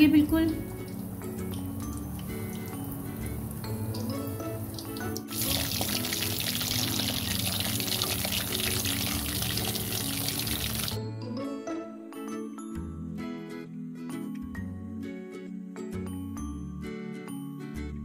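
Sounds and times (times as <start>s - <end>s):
background music: 0.0s - 18.0s
hot oil sizzling: 0.5s - 11.0s.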